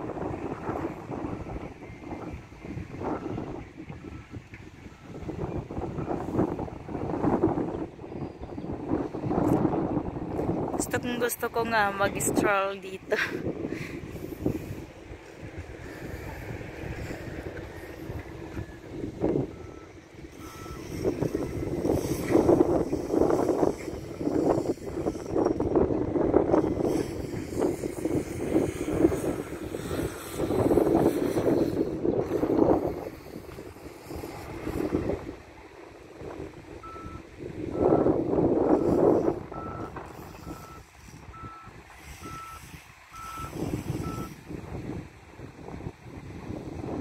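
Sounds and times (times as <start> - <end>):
wind buffeting microphone: 0.0 - 47.0
reversing alarm beeping: 0.8 - 6.9, 14.2 - 26.0, 36.8 - 44.4.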